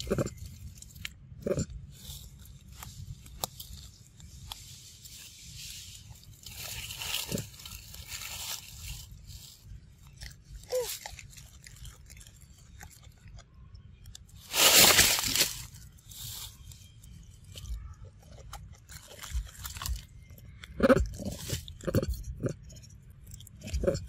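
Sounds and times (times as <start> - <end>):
monkey chewing with crunching clicks: 6.4 - 14.3, 17.5 - 24.0
loud noisy crunching: 14.4 - 15.8.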